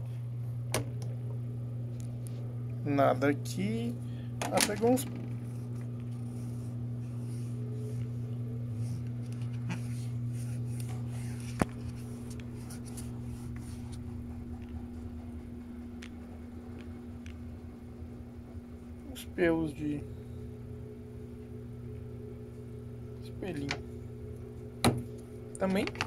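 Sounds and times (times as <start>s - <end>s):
steady low hum: 0.0s - 26.0s
scratching lint off mesh filter: 5.3s - 14.8s.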